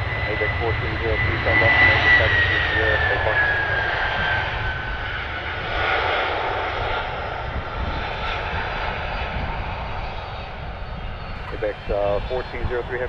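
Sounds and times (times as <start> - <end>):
jet engine rumble and hiss: 0.0 - 13.0
faint falling whine: 11.4 - 13.0.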